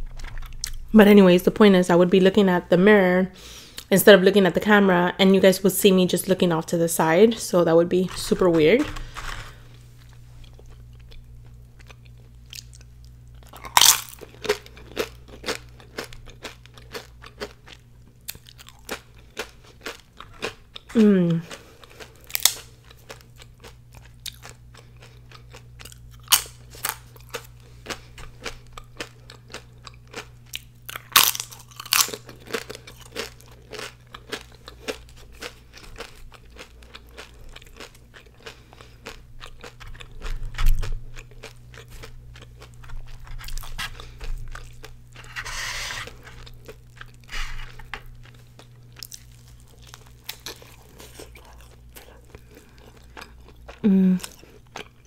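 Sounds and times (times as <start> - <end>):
crunching chips while eating: 7.4 - 55.0.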